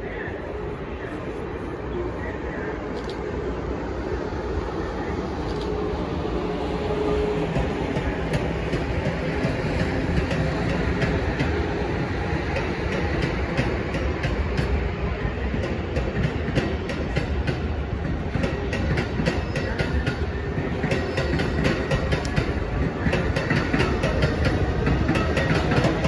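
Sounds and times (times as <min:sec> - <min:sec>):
train rolling past with rumble: 0:00.0 - 0:26.0
wheels clicking over rail joints: 0:15.5 - 0:26.0.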